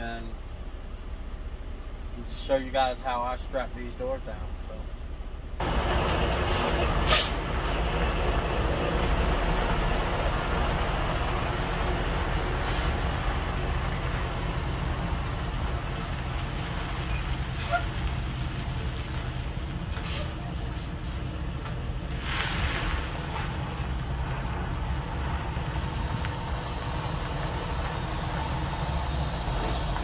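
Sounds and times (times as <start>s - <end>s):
diesel truck engine idling: 3.1s - 30.0s
air hisses: 12.6s - 13.1s.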